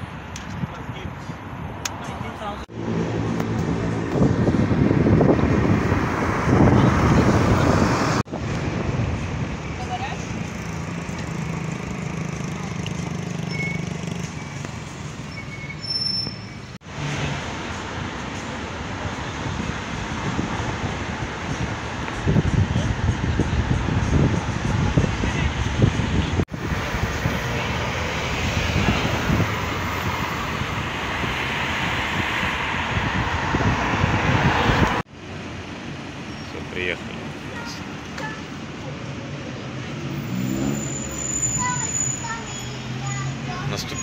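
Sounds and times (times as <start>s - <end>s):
car engine and road noise: 0.0s - 44.0s
wind buffeting microphone: 0.1s - 9.8s, 19.0s - 35.0s.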